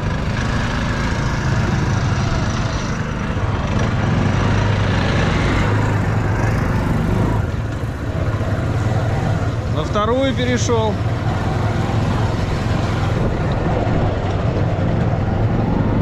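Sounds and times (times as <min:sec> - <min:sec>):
trike engine under throttle: 0:00.0 - 0:16.0.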